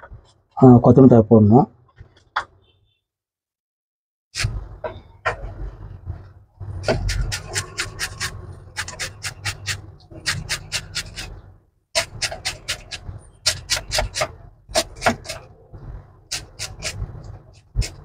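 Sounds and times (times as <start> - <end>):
knife chopping on wooden board: 12.0 - 15.4.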